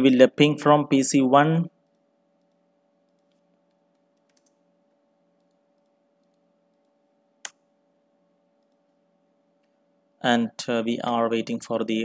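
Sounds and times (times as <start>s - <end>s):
faint steady hum: 0.0s - 12.0s
computer keyboard typing: 1.8s - 4.6s, 5.4s - 7.6s.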